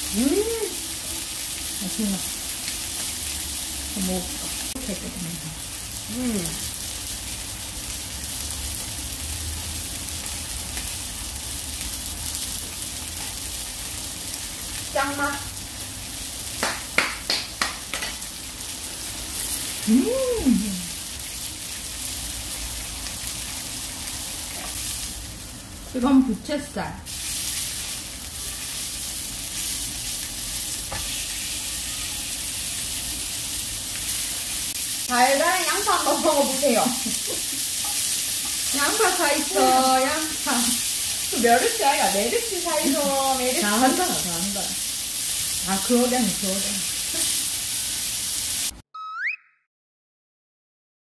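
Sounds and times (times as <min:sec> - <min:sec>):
beef sizzling on grill pan: 0:00.0 - 0:48.8.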